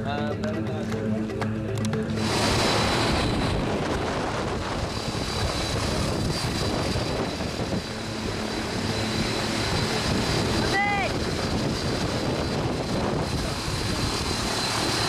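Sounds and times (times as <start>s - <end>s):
propeller plane engine running: 0.0s - 15.0s
thin high whine: 2.1s - 10.2s.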